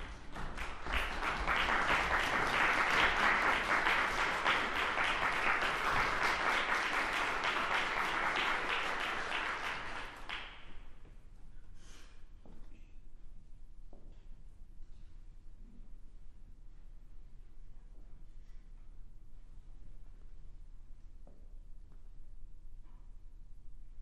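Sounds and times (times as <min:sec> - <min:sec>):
audience applauding: 0:00.0 - 0:10.7.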